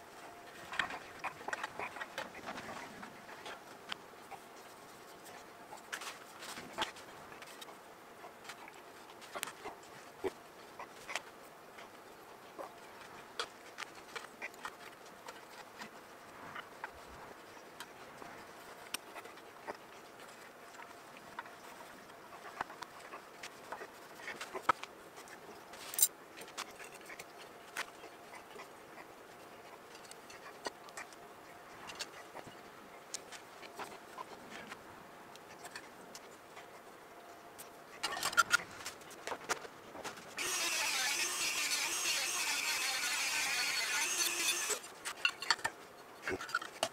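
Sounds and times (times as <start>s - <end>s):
metal tools clicking and knocking: 45.1s - 45.8s.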